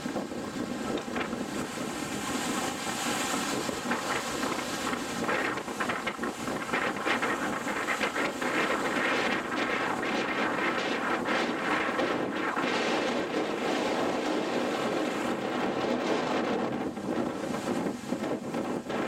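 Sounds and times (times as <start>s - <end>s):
storm wind over choppy sea: 0.0s - 19.0s.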